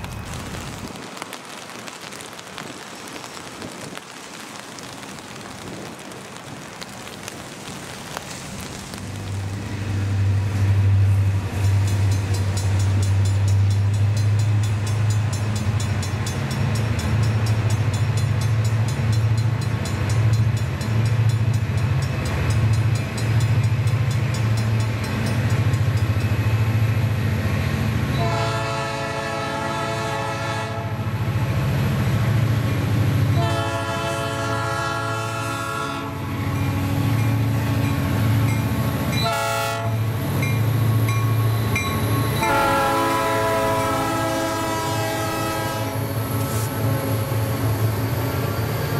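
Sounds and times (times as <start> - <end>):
locomotive horn blasts: 28.1 - 31.0, 33.4 - 36.2, 39.2 - 40.0, 42.4 - 46.7.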